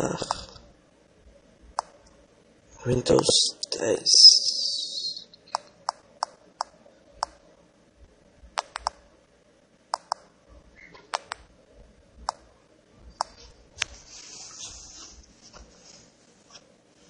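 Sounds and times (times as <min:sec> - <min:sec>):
smartphone keyboard typing clicks: 0:08.6 - 0:09.0, 0:09.9 - 0:10.2, 0:11.0 - 0:11.5.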